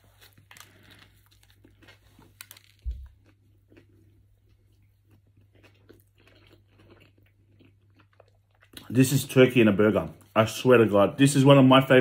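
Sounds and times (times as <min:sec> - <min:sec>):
man chewing food: 0:00.0 - 0:09.0.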